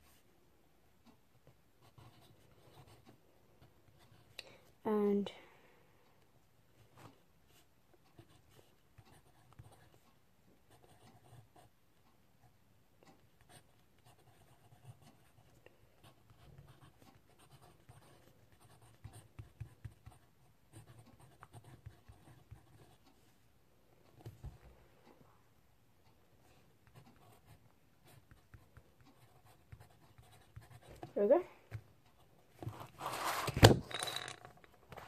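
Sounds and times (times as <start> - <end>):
pen scratching on paper: 1.8 - 3.2, 8.1 - 10.0, 10.7 - 11.7, 13.4 - 23.1, 26.8 - 31.2.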